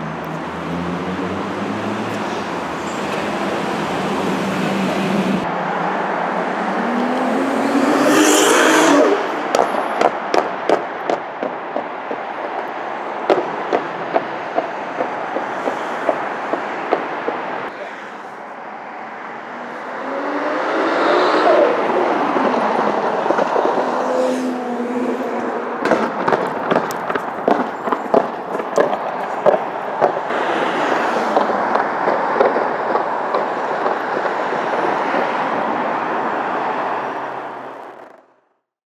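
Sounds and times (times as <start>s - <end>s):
car engine accelerating: 0.0s - 9.6s
sharp exhaust pops and bangs: 25.8s - 30.3s, 31.3s - 35.3s.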